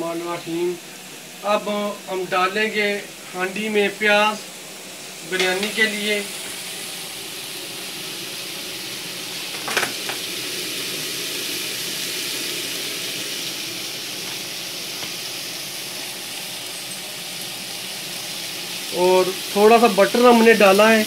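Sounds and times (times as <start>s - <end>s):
onions sizzling in butter: 0.0s - 21.0s.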